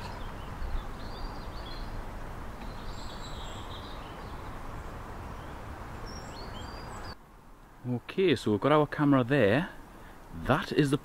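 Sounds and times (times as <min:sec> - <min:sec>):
small birds chirping: 0:00.0 - 0:07.2
rushing outdoor background noise: 0:00.0 - 0:11.0.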